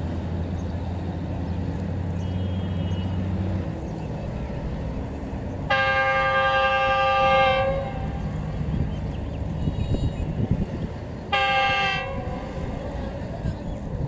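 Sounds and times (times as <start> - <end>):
locomotive engine drone: 0.0 - 14.0
locomotive air horn blast: 2.2 - 3.5, 5.6 - 8.8, 11.3 - 13.0.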